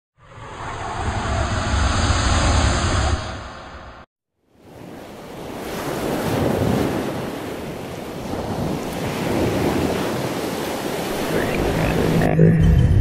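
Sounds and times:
ocean waves washing on shore: 4.5 - 12.3.

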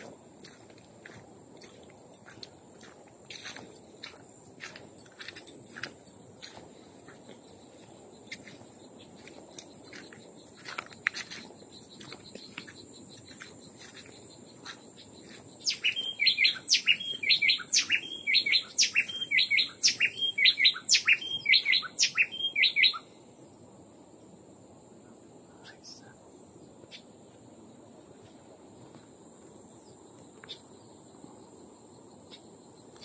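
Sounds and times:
bird singing: 5.0 - 23.3.

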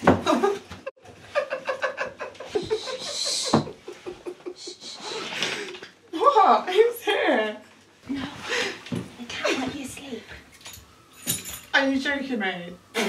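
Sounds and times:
women giggling: 0.2 - 5.8.

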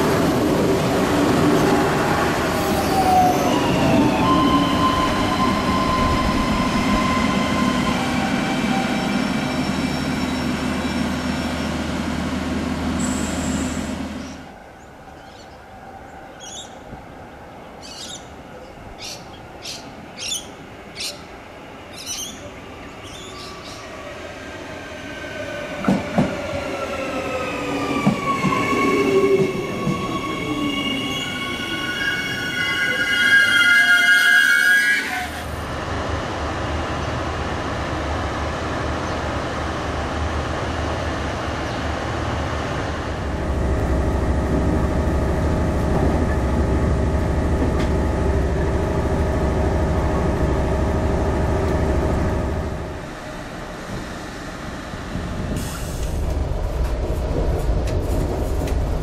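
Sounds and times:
diesel railcar engine droning: 0.0 - 14.9, 28.0 - 59.0
electric train whine: 0.0 - 16.9, 20.2 - 59.0.

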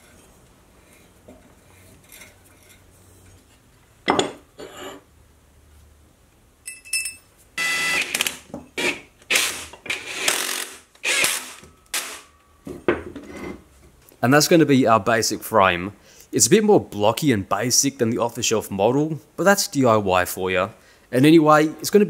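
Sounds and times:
light metallic clink: 6.6 - 7.3
cordless drill-driver bursts: 7.6 - 12.2.

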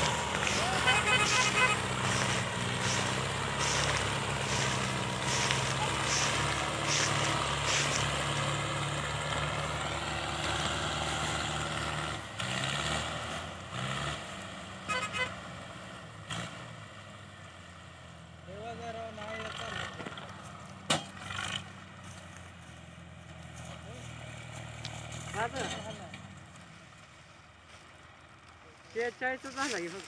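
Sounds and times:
engine revving: 0.0 - 17.0, 18.7 - 22.0
diesel tractor engines running: 0.0 - 30.0.

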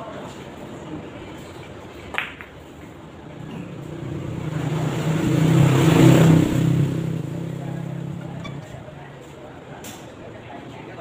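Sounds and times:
vehicle engine passing: 3.0 - 9.7.

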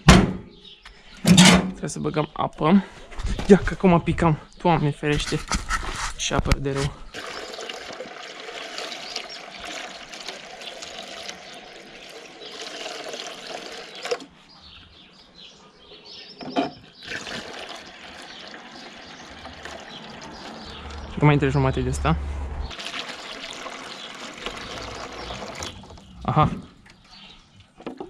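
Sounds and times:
water pouring through funnel: 7.1 - 14.3, 17.0 - 21.2, 22.7 - 26.4.

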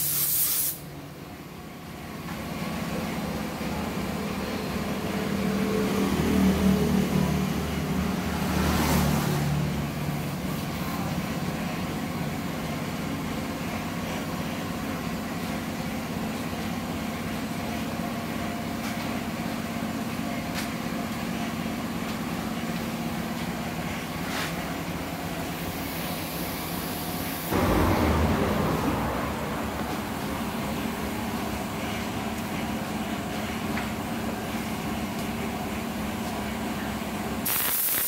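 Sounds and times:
machine humming: 27.5 - 33.0.

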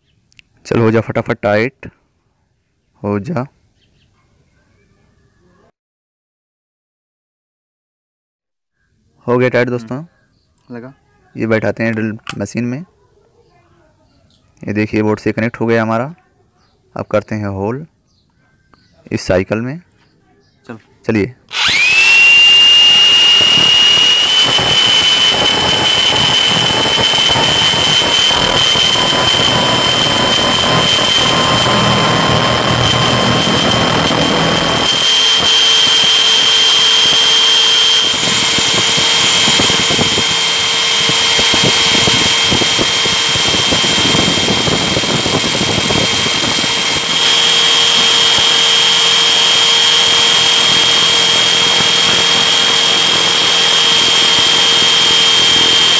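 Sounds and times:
hammer drill boring into steel: 21.5 - 55.9.

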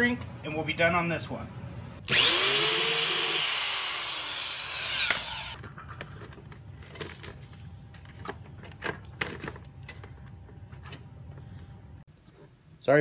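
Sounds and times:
power drill whining: 2.1 - 5.6.

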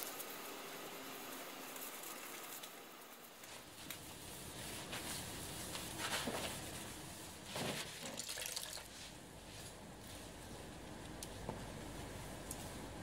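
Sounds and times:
wet sponge rubbing: 3.4 - 7.9
water splashing and dripping: 8.1 - 8.9.

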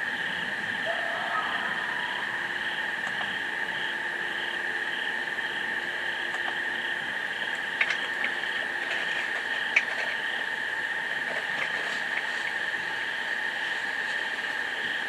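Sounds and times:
insect high trill: 0.0 - 11.3
pulsing insect chirp: 0.0 - 15.0.

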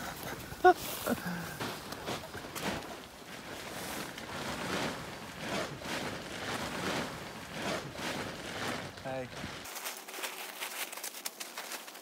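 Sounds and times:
tent fabric rustling: 0.0 - 12.0.

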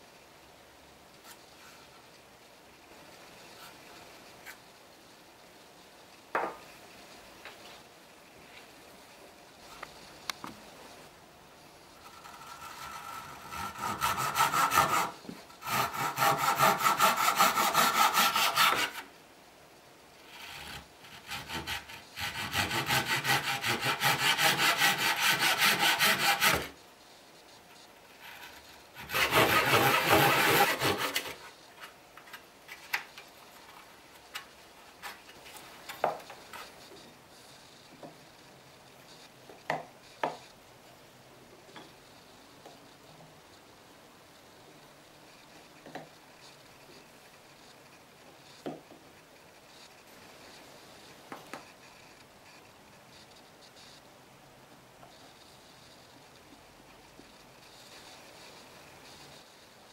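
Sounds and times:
hand saw cutting wood: 12.4 - 19.0, 20.4 - 26.8, 29.0 - 31.5.

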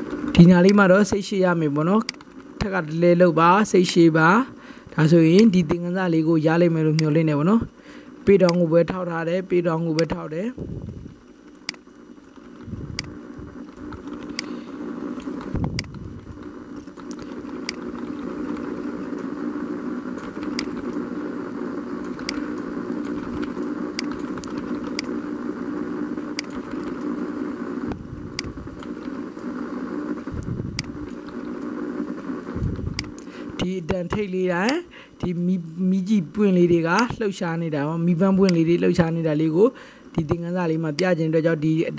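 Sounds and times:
steady low hum: 0.0 - 41.9
computer mouse clicking: 11.5 - 14.5, 15.2 - 19.3, 20.2 - 21.0, 22.0 - 25.2, 26.4 - 27.1, 30.8 - 33.3.

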